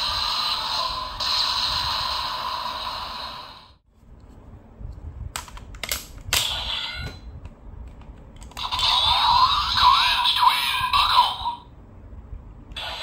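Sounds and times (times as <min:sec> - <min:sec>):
sharp plastic clicks: 0:05.3 - 0:06.5
toy electronic sound: 0:08.6 - 0:11.6.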